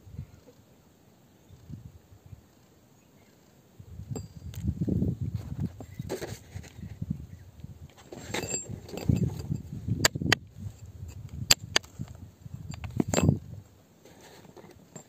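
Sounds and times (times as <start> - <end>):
metal clinking on stone: 4.1 - 4.6, 8.2 - 9.7, 12.7 - 13.4
metal rod scraping rock: 8.0 - 15.0.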